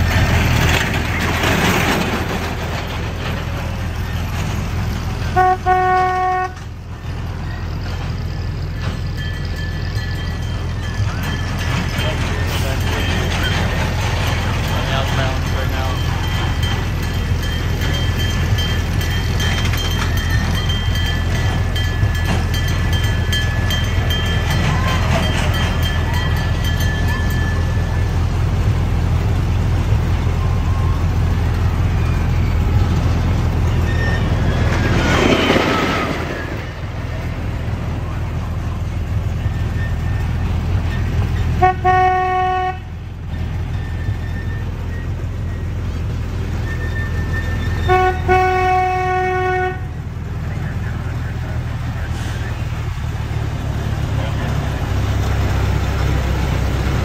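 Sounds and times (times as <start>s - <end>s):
miniature train rumbling: 0.0s - 57.0s
train horn toot: 5.3s - 6.7s, 41.6s - 43.0s, 47.8s - 50.0s.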